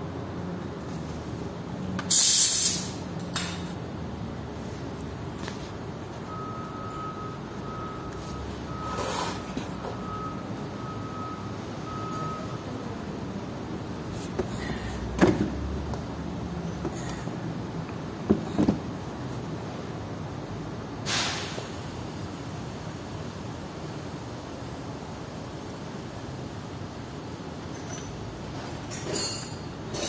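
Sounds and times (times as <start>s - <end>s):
air hissing: 2.0s - 3.0s, 21.1s - 21.7s.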